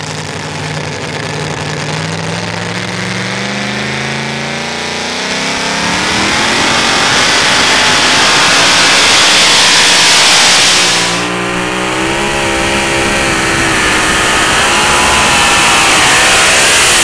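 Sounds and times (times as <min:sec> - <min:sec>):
supercharged engine at full throttle: 0:00.0 - 0:17.0.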